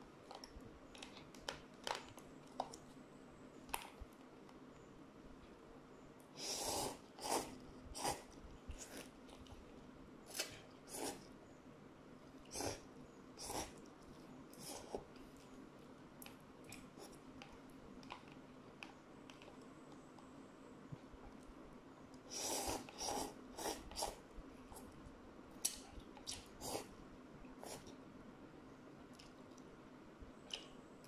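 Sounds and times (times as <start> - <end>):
person slurping noodles: 6.4 - 9.1, 10.3 - 11.2, 12.5 - 13.8, 22.3 - 24.2, 26.6 - 26.9.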